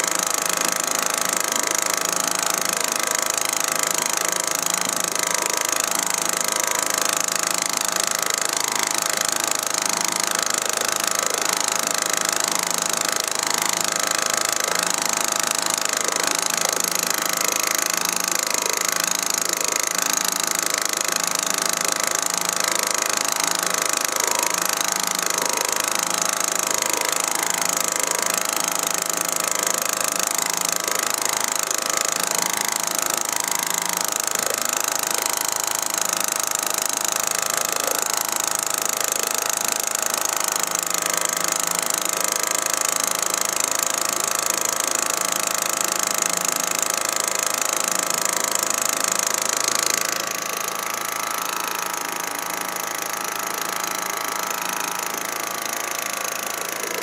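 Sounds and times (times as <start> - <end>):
outboard motor running steadily: 0.0 - 57.0.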